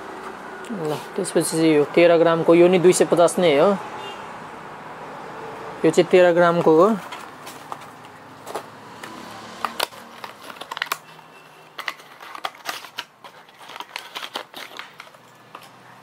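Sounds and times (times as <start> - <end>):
plastic packaging crinkling and clicking: 6.6 - 16.0.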